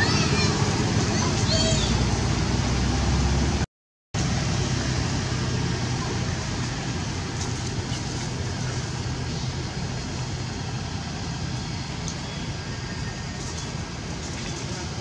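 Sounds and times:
distant road traffic: 0.0 - 15.0
constant low hum: 4.2 - 15.0.

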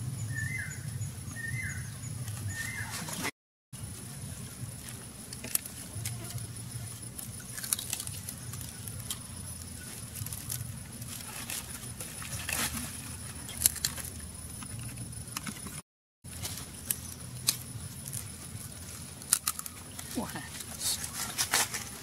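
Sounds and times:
chewing: 5.3 - 15.7, 16.5 - 21.4
grilled bird being torn apart: 7.4 - 9.2.

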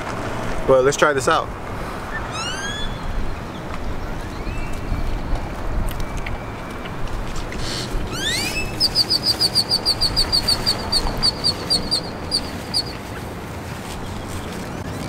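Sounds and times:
bird whistling and chirping: 2.1 - 3.2, 4.2 - 5.1, 7.6 - 13.0.

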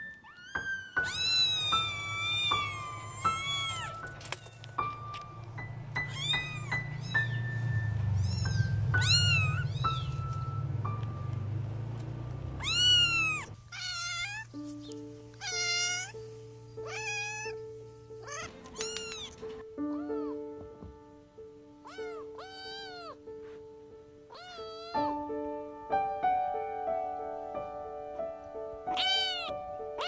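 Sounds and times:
cat meowing: 0.0 - 4.0, 6.0 - 7.6, 8.2 - 10.3, 12.6 - 14.6, 15.4 - 17.6, 18.2 - 20.4, 21.8 - 23.2, 24.3 - 25.2, 28.9 - 30.0
light background music: 0.0 - 30.0
kitten mewing: 8.2 - 10.1, 12.6 - 14.5, 16.8 - 17.6, 21.8 - 23.2, 24.3 - 25.1, 28.9 - 29.5.

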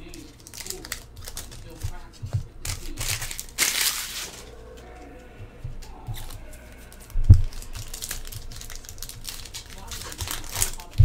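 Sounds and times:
cards clicking and rustling: 0.0 - 4.4, 7.4 - 11.0
packaging crinkle: 2.6 - 4.4, 7.4 - 11.0.

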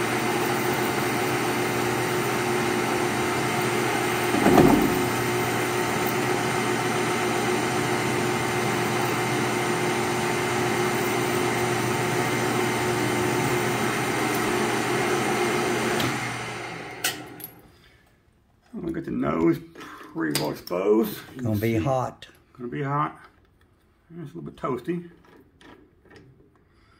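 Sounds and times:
metal lathe running: 0.0 - 16.7
tool cutting metal: 4.1 - 6.3.

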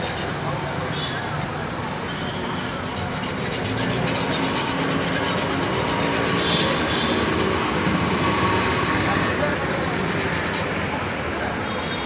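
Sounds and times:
road traffic noise: 0.0 - 12.0
file rasping on steel blade: 2.6 - 10.9.

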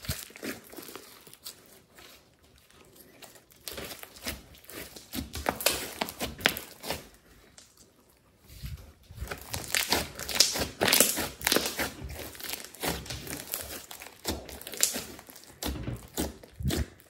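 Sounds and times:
slime squelching crackles and pops: 0.0 - 1.6, 3.4 - 7.9, 9.0 - 17.0.

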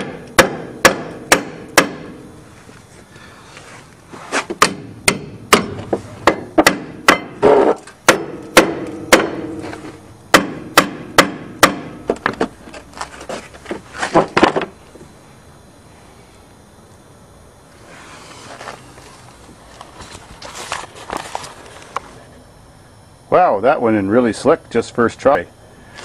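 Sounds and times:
hammer striking metal: 0.0 - 2.1, 4.6 - 9.6, 10.3 - 12.0.

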